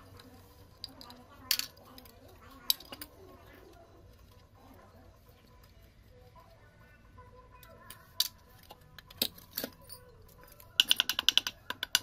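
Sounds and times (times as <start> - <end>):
metal parts clinking: 9.0 - 11.4.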